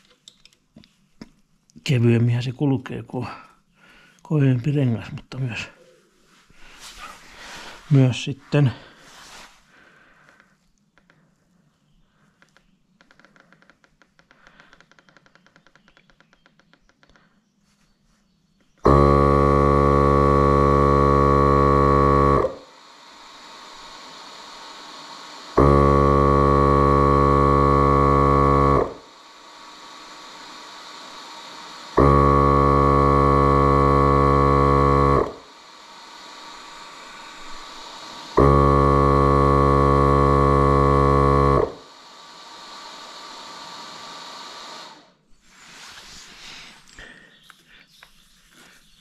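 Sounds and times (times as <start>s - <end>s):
loud buzzing tone: 18.8s - 45.2s.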